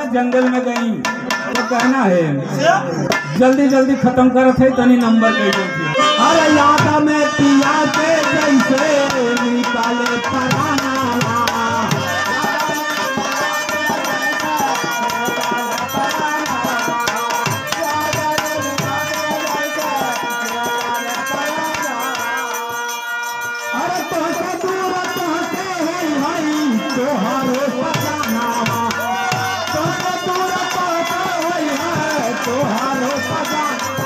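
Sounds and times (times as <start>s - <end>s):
tabla playing: 0.0s - 34.0s.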